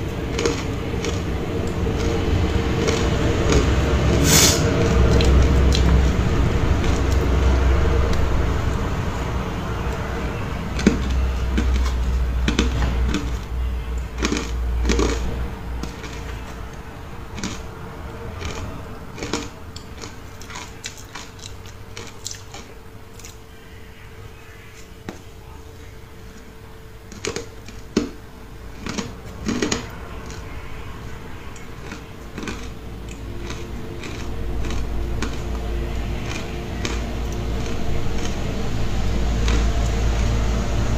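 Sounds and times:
low rumble: 0.0s - 22.0s, 28.3s - 40.9s
chewing crunchy ice: 0.0s - 40.9s
faint steady hum: 0.0s - 40.9s.

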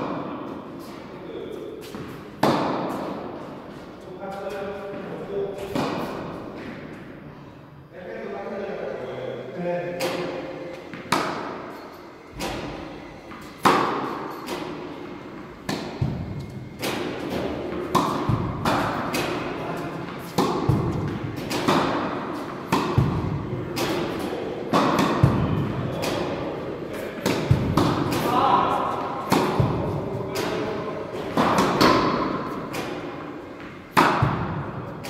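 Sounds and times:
tennis balls bouncing on court: 1.8s - 3.1s, 15.6s - 19.5s, 20.1s - 26.4s, 27.2s - 28.4s, 29.2s - 35.0s
racket hitting tennis ball: 1.8s - 7.1s, 10.0s - 35.0s.

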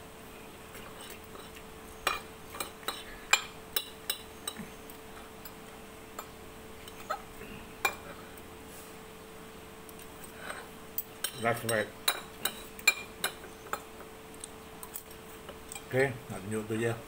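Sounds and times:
faint steady hum: 0.0s - 17.0s
cutlery clinking on ceramic plate: 2.0s - 4.6s.

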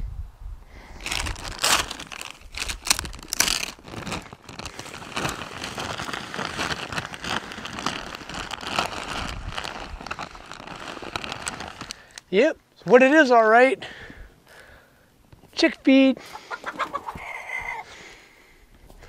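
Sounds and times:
paper bag crinkling: 1.0s - 12.2s.

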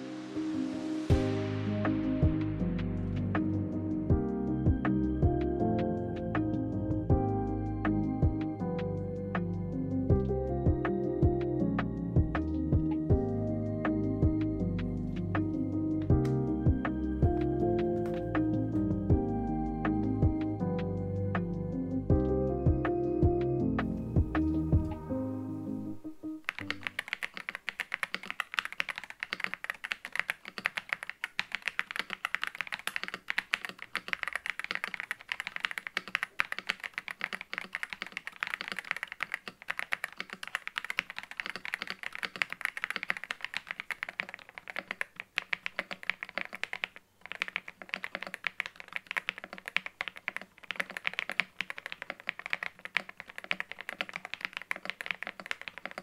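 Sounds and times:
fast mechanical keyboard typing: 26.4s - 56.0s.

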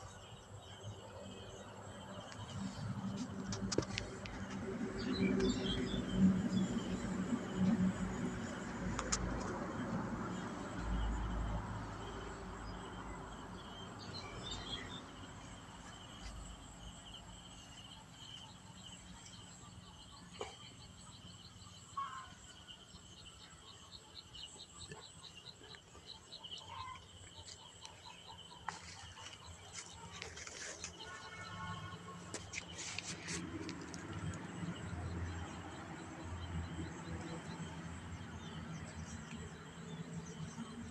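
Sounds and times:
insects chirping drone: 0.0s - 40.9s.

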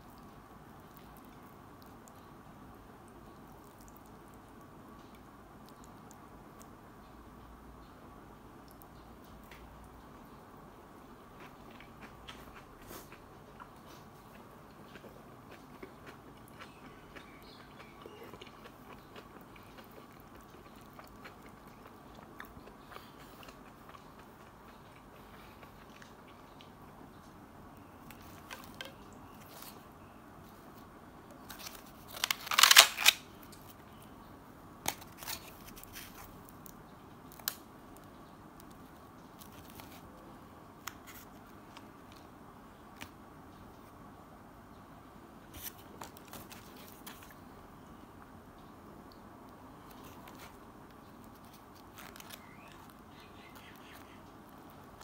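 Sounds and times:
faint steady hum: 0.0s - 55.0s
packaging being handled: 31.5s - 33.2s.

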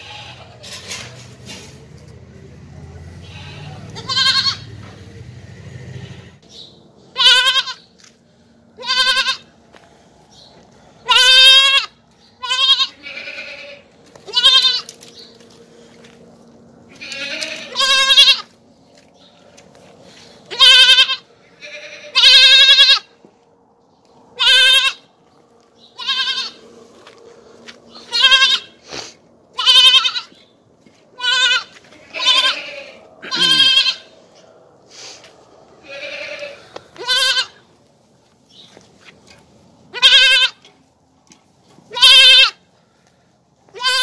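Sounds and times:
young goat bleating: 0.0s - 0.7s, 3.1s - 4.8s, 7.1s - 7.9s, 8.8s - 9.6s, 11.0s - 15.1s, 16.9s - 18.6s, 20.1s - 23.2s, 24.4s - 25.1s, 25.8s - 26.6s, 27.6s - 28.9s, 29.5s - 30.5s, 31.1s - 34.2s, 35.8s - 37.8s, 39.9s - 40.8s, 41.8s - 42.7s, 43.7s - 44.0s.

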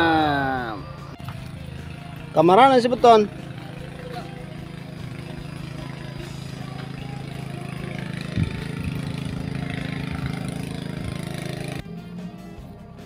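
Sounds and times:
small engine running: 0.0s - 12.7s.

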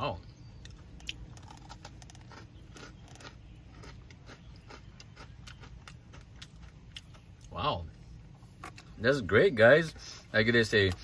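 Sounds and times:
low steady hum: 0.0s - 11.0s
cookie crunching while chewing: 0.6s - 7.6s.

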